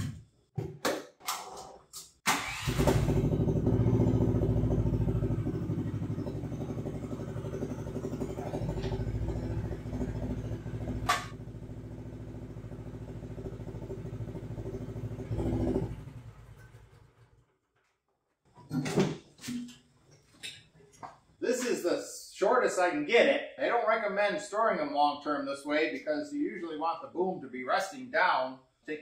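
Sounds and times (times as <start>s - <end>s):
excavator engine running: 2.4s - 16.7s.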